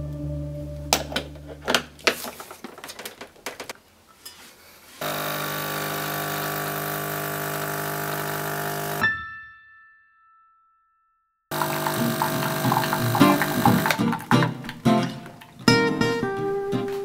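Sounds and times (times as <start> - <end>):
espresso machine pump buzzing: 5.0 - 9.0, 11.5 - 14.0
portafilter clicking and knocking: 11.5 - 14.8.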